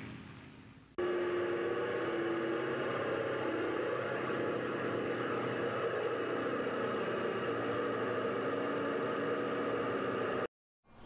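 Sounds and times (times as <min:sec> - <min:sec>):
engine drone with hiss: 0:00.0 - 0:10.5.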